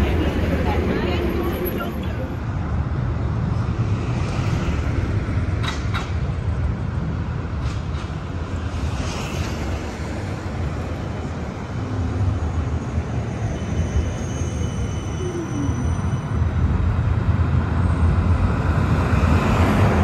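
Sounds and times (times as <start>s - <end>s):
tram wheels rumbling on rails: 0.0s - 20.0s.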